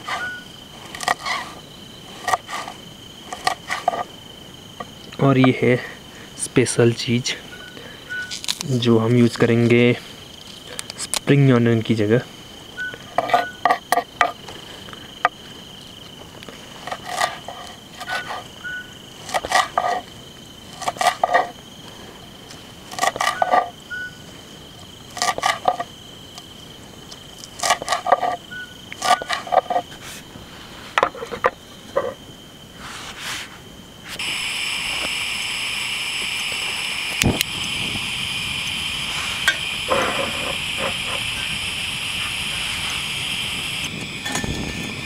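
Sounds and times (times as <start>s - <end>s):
crickets chirring: 0.0s - 45.0s
high-pitched steady sound: 34.2s - 45.0s.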